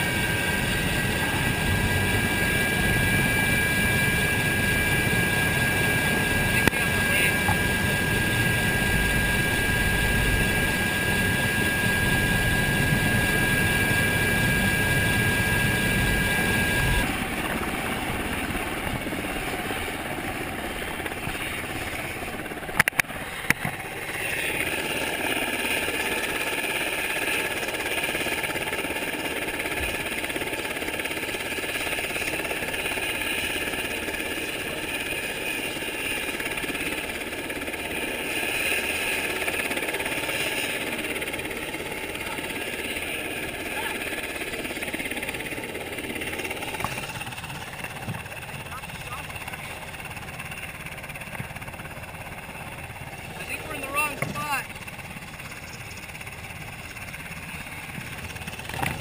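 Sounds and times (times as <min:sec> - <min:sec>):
high whine: 0:00.0 - 0:24.6
helicopter engines and rotors: 0:00.0 - 0:59.0.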